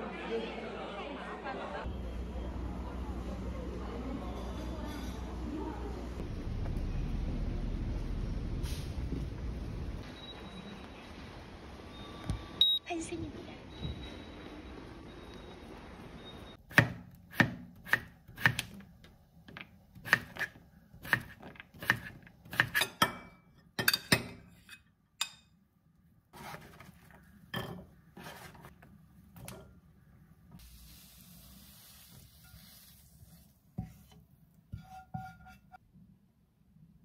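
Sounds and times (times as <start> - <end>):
knife chopping on wooden board: 16.7 - 18.8, 20.0 - 23.0.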